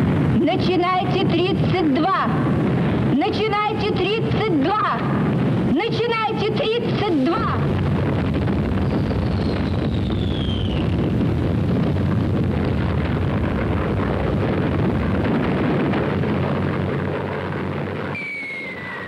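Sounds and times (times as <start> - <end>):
rockets launching roar: 0.0 - 19.0
high falling whistle: 8.8 - 10.9, 18.1 - 19.0.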